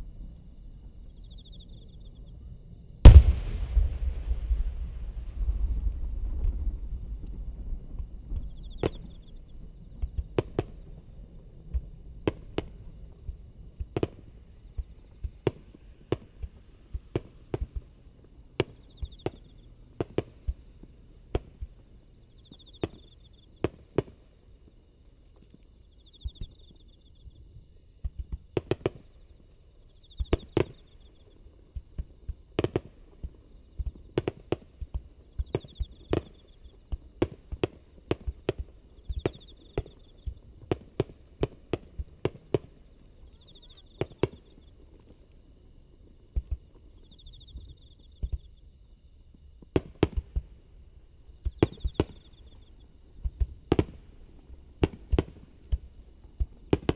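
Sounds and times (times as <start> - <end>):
distant fireworks bangs: 3.0 - 7.0
low rumble: 3.1 - 8.3.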